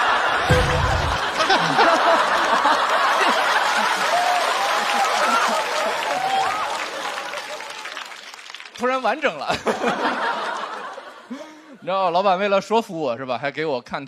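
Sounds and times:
audience laughing: 0.0 - 7.8, 9.5 - 11.8.

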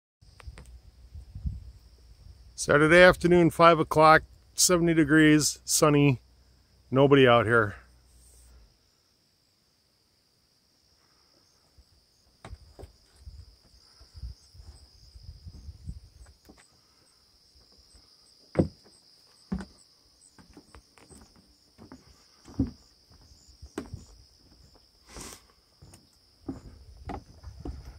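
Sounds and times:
insects chirring: 0.2 - 27.9
footsteps on wooden boardwalk: 12.4 - 16.9, 17.6 - 27.9.

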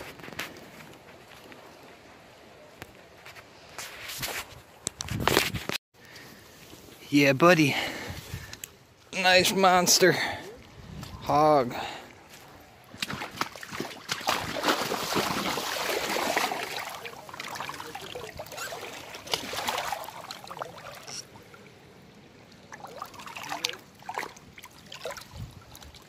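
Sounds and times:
water splashing in river: 12.1 - 26.0.

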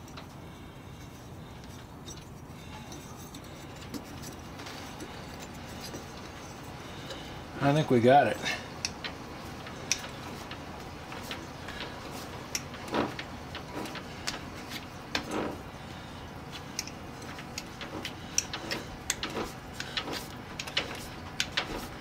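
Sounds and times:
light metal clicks and scrapes: 0.0 - 7.4, 16.5 - 22.0.

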